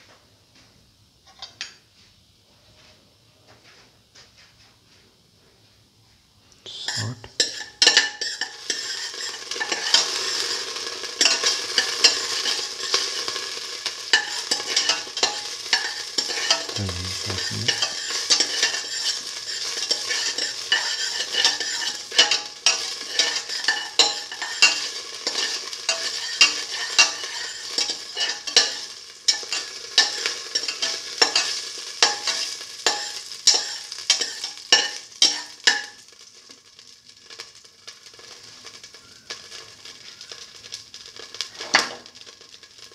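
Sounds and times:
seeds sizzling in hot oil: 6.6s - 42.9s
spatula stirring in pan: 7.4s - 16.8s, 17.4s - 36.1s.

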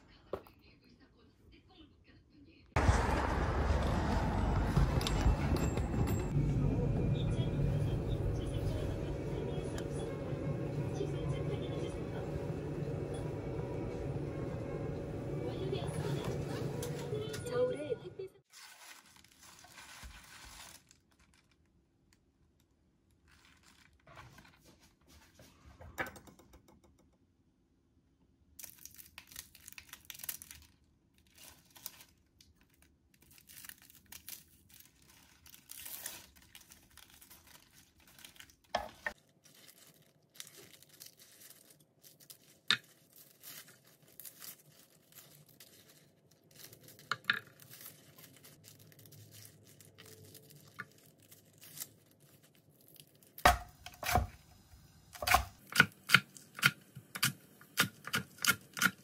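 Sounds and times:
leaves rustling: 18.5s - 21.3s, 34.7s - 53.3s.

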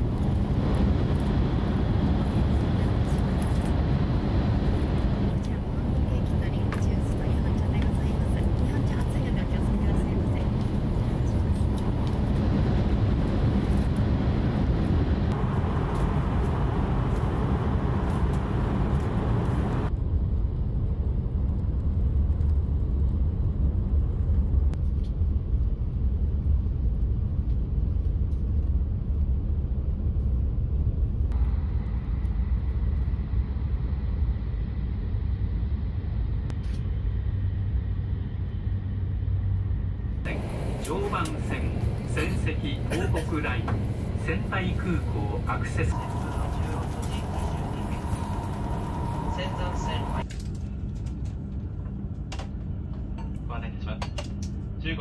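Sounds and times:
train cabin rumble: 0.0s - 19.9s, 40.2s - 54.4s.

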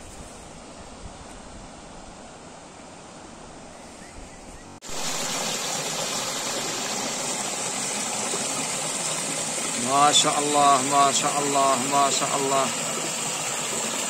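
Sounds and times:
stream water over stones: 4.8s - 14.0s.

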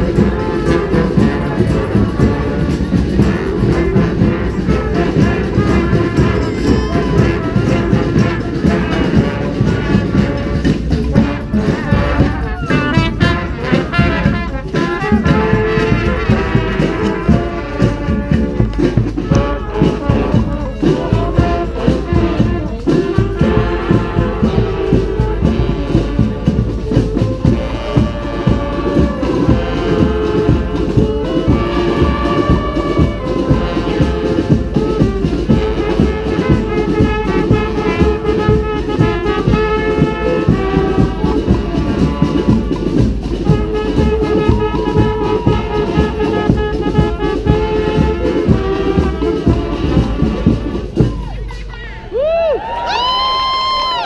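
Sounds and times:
brass band playing cumbia: 0.0s - 54.0s.

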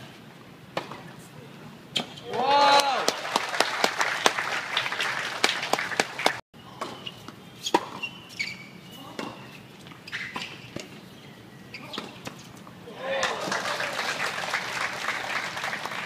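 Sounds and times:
spectators clapping: 2.8s - 6.4s, 13.2s - 16.0s.

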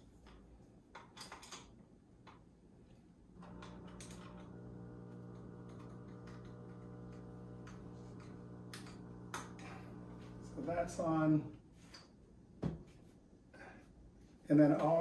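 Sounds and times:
steady machine hum: 3.4s - 11.5s.

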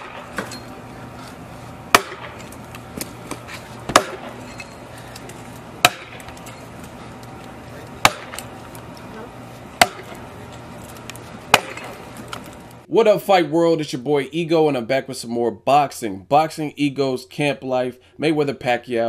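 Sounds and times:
axe chopping log: 0.0s - 0.5s, 1.9s - 4.5s, 5.8s - 6.4s, 8.0s - 8.5s, 9.8s - 10.2s, 11.4s - 12.0s.

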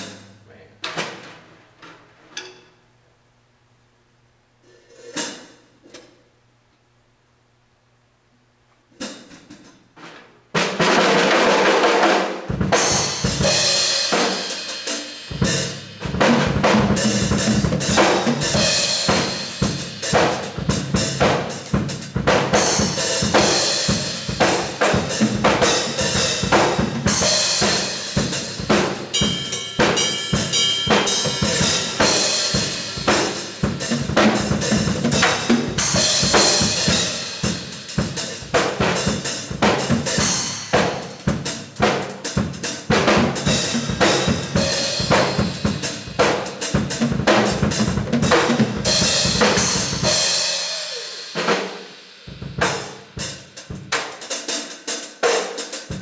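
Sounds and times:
drum kit played hard: 9.0s - 56.0s
loud cymbal crash: 22.6s - 41.2s, 48.5s - 53.4s.

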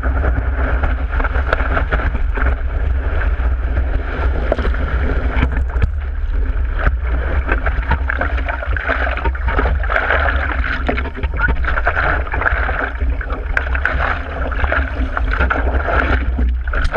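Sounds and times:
water splashing against surfboard: 0.0s - 16.9s.

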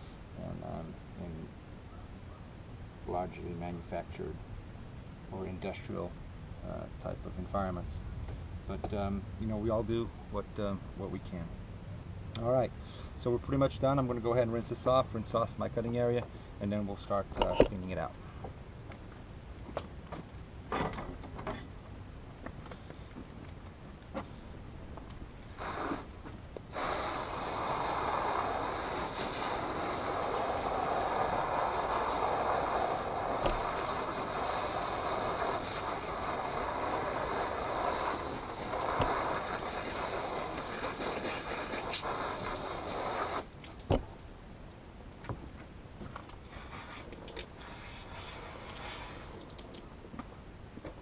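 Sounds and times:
hose spraying water: 25.5s - 43.9s, 46.5s - 49.8s.

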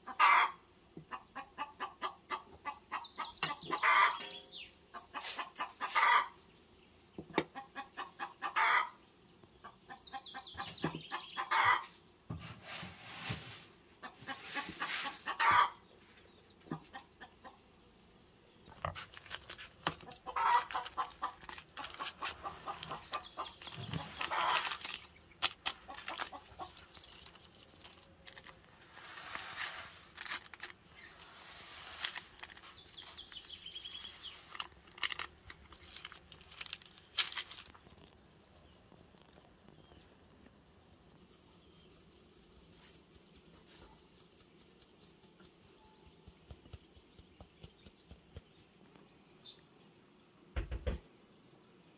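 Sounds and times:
chickens clucking: 0.0s - 6.4s, 7.2s - 9.0s, 9.6s - 12.0s, 13.9s - 17.7s, 19.9s - 26.9s.

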